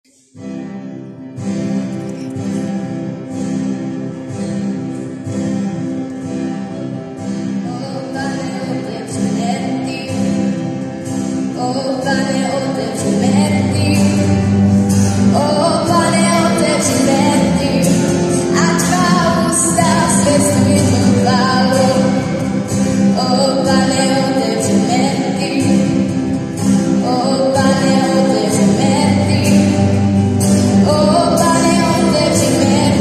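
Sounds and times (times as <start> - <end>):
acoustic guitar strumming: 0.0 - 33.0
woman singing: 7.6 - 10.6, 11.4 - 33.0.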